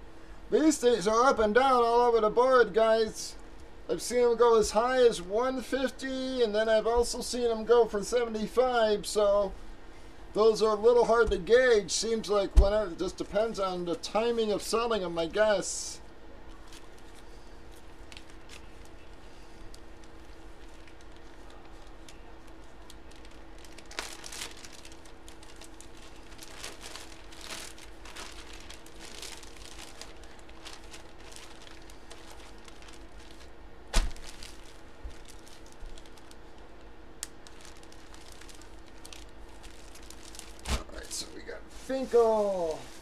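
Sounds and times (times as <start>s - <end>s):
faint steady hum: 0.0s - 43.0s
plastic bag crinkling: 16.5s - 43.0s.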